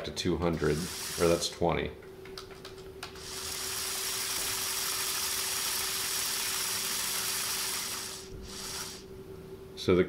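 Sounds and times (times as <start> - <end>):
motor whirring: 3.2 - 9.0.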